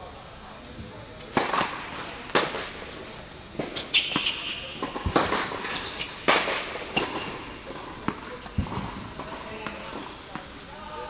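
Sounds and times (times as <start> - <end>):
racket striking tennis ball: 1.3 - 10.5
tennis ball bouncing: 1.3 - 10.6
shoe squeaking on court: 2.9 - 8.4.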